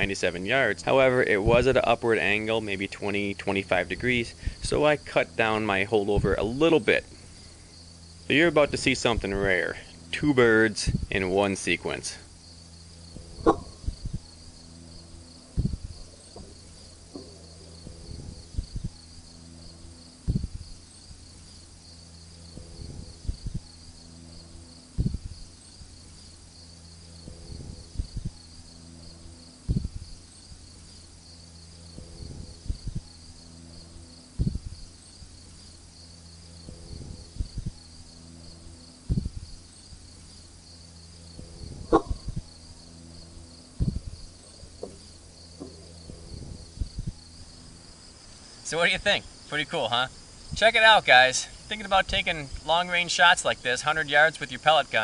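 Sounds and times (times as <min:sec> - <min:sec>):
high pulsing chirr: 0:00.0 - 0:55.0
low thuds: 0:13.0 - 0:21.8, 0:22.4 - 0:26.1, 0:27.0 - 0:48.1.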